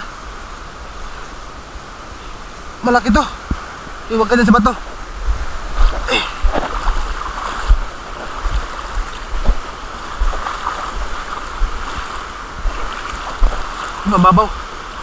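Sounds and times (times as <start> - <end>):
surf and lapping sea water: 0.0 - 15.0
wind buffeting microphone: 4.6 - 15.0.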